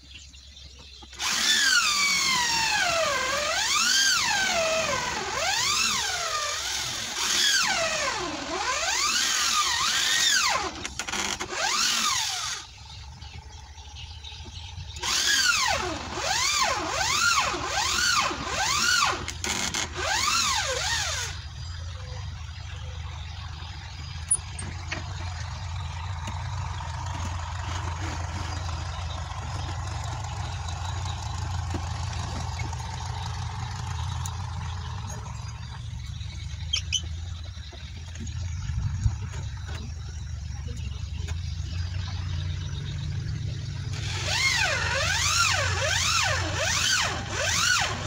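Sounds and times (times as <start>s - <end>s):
steady low hum: 0.0s - 48.0s
power drill boring into wood: 1.2s - 12.7s, 15.0s - 21.4s, 43.9s - 48.0s.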